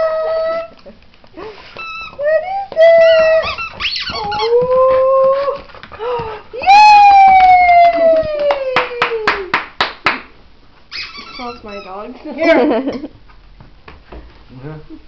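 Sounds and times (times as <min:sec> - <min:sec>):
squeaky rubber toy squeaking: 0:01.8 - 0:02.2, 0:03.0 - 0:04.6, 0:10.9 - 0:12.2.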